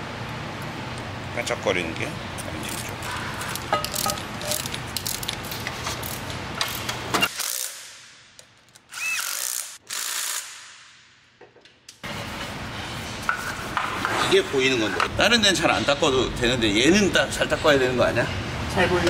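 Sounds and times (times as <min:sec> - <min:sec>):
power ratchet clicking and whirring: 0:06.0 - 0:07.9, 0:08.8 - 0:10.7.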